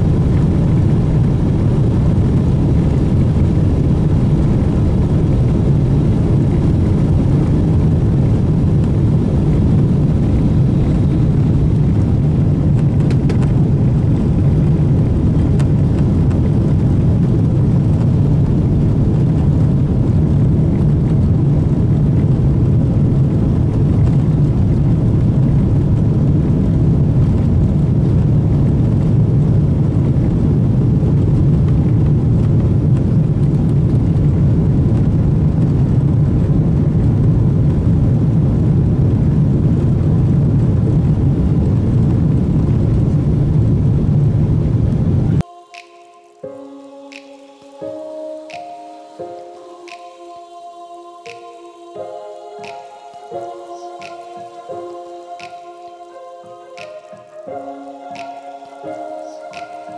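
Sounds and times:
airplane cabin rumble: 0.0s - 45.5s.

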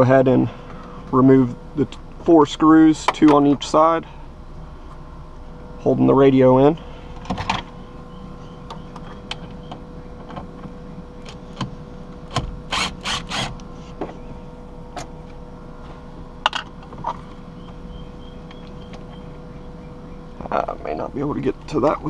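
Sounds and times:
cordless drill bursts: 12.7s - 13.5s.

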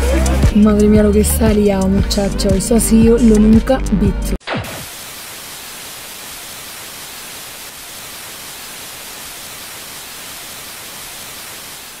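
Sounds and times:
tv static hiss: 4.5s - 12.0s.

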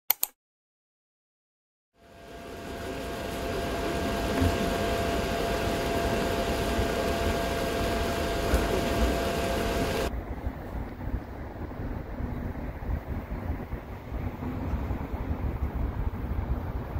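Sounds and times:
machine whirring hum: 2.0s - 11.8s
wind noise on microphone: 9.9s - 16.9s.

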